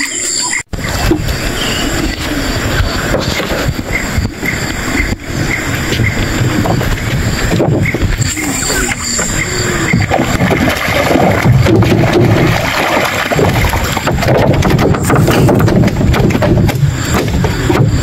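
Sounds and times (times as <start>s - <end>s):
fish splashing at water surface: 8.4s - 16.4s
fish flapping on wooden deck: 10.0s - 18.0s.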